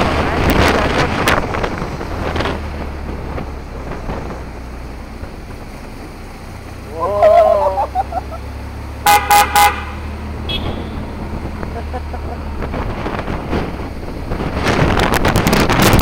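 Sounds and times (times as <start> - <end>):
road vehicle running noise: 0.0 - 16.0
wavering voice-like sound: 6.9 - 8.1
horn beeps: 9.0 - 11.1.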